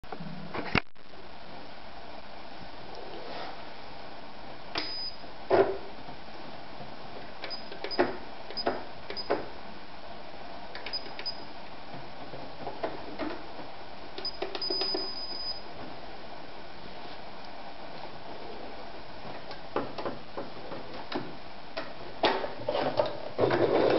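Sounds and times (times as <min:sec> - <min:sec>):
short high electronic beeps: 0:04.8 - 0:05.2, 0:14.2 - 0:15.6.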